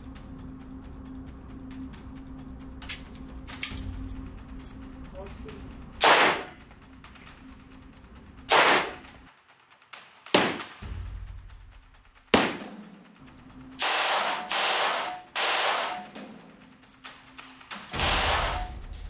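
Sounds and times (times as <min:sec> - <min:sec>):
gunshot echoes: 0:06.0 - 0:06.6, 0:08.5 - 0:09.0, 0:10.3 - 0:10.8, 0:12.3 - 0:12.8, 0:13.8 - 0:16.1, 0:18.0 - 0:18.7
submachine gun firing bursts: 0:06.0 - 0:06.6, 0:08.5 - 0:09.0, 0:10.3 - 0:10.8, 0:12.3 - 0:12.8, 0:13.8 - 0:16.2, 0:17.9 - 0:18.7.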